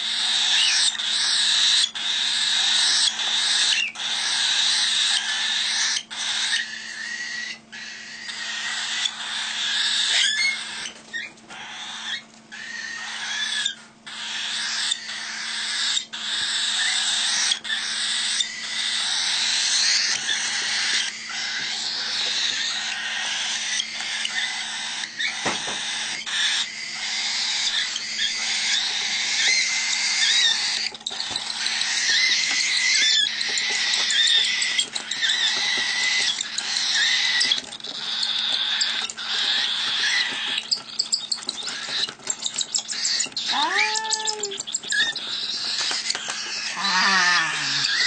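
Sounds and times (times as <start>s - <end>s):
chicks hissing begging calls: 0.0s - 48.0s
short descending bird calls: 43.1s - 44.6s.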